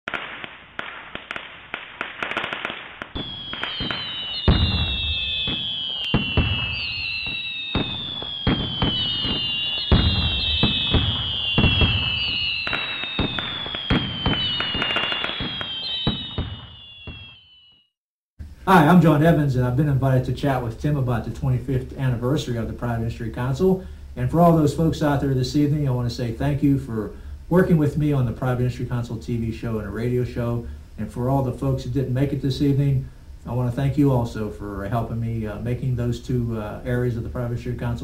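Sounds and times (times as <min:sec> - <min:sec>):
fireworks booms: 0:00.1 - 0:17.4
fireworks crackling: 0:00.1 - 0:17.4
falling whistles: 0:03.1 - 0:18.0.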